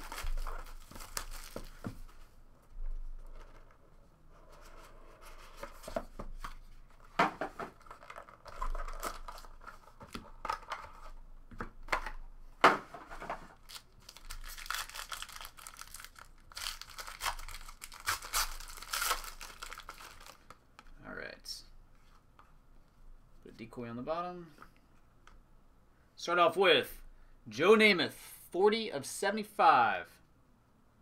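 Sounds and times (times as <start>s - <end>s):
foil wrapper tearing and crinkling: 0.0s - 1.6s, 13.6s - 20.5s.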